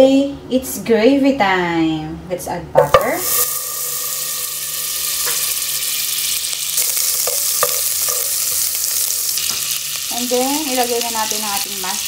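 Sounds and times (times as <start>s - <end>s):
butter sizzling in a pot: 2.9s - 12.0s.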